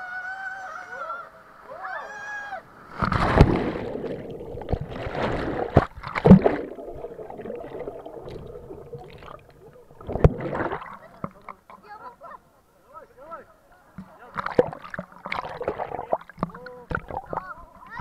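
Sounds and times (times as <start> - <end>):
splashing water: 2.9 - 11.8, 14.0 - 18.0
underwater gurgling and bubbling: 3.0 - 11.0, 14.4 - 17.5.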